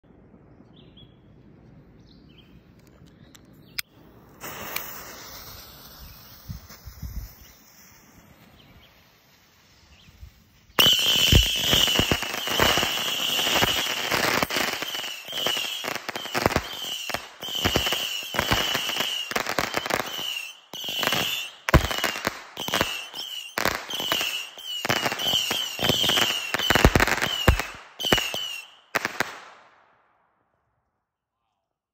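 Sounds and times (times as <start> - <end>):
whistling missiles: 3.8 - 29.9
hiss: 4.3 - 13.1.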